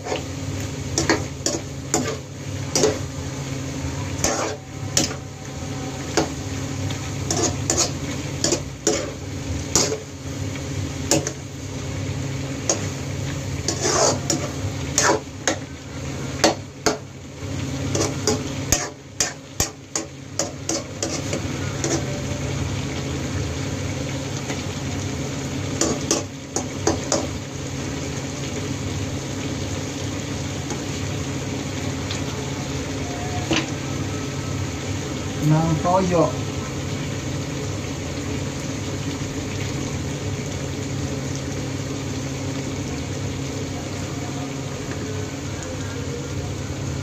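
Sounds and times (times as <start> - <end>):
metal ladle scraping frying pan: 4.1 - 5.2, 7.2 - 10.1, 13.6 - 15.7, 17.9 - 22.1.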